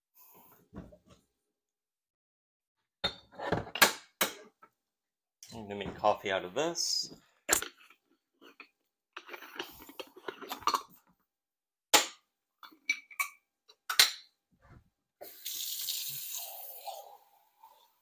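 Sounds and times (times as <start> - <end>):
water running: 15.2 - 18.0.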